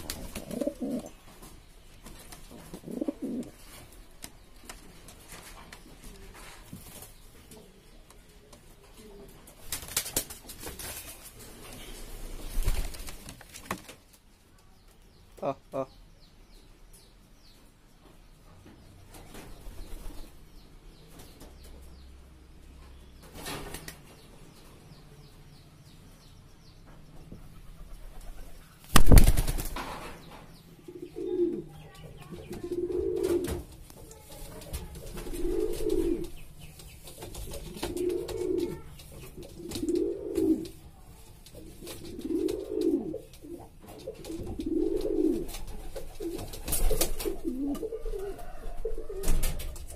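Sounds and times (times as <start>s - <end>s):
pigeon cooing: 0.0s - 1.2s, 2.7s - 3.6s, 32.4s - 33.6s, 35.2s - 36.3s, 37.5s - 40.7s, 42.0s - 45.5s, 47.2s - 49.4s
pigeon wings flapping: 9.6s - 11.4s, 12.4s - 14.0s, 28.1s - 30.0s, 44.3s - 47.6s.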